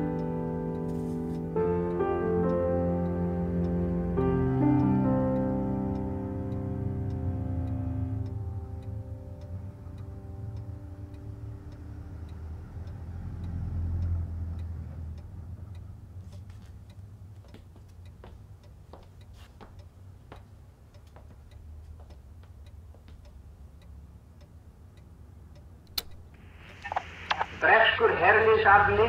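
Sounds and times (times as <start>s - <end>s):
low hum: 0.0s - 16.3s
clock ticking: 0.0s - 27.6s
irregular clicks: 20.9s - 27.6s.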